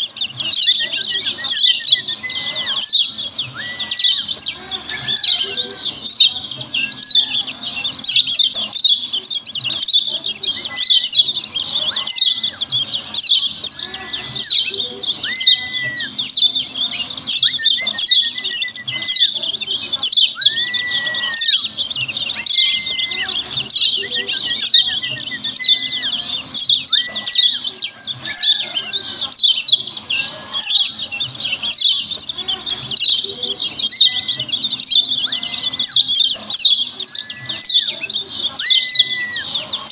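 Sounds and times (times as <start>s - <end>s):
bird sharp down-slurred chirps: 0.0s - 39.9s
bird held whistle: 20.1s - 21.7s.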